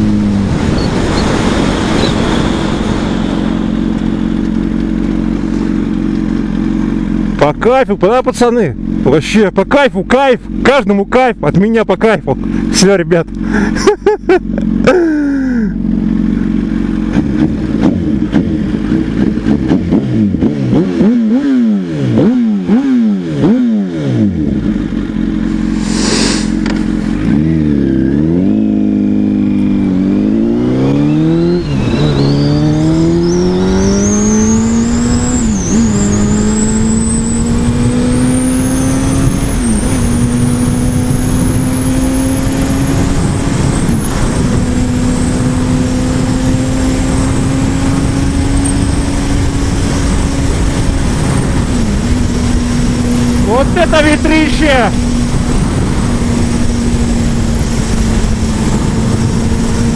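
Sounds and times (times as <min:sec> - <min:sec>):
wind noise: 0:00.0 - 0:04.2, 0:29.6 - 0:59.9
motorcycle engine revving: 0:00.0 - 0:59.9.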